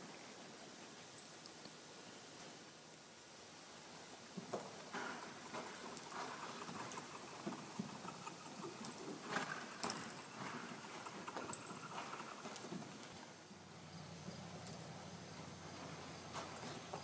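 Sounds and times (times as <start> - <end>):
horse hooves in soft dirt: 3.9 - 17.0.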